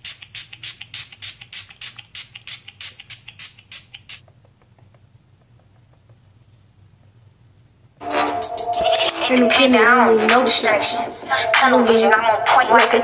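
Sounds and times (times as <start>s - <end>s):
sharp high clicks: 0.1s - 5.0s.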